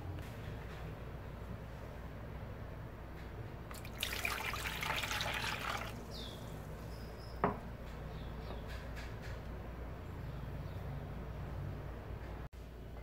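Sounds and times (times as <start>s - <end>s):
water pouring into bowl: 3.7s - 6.1s.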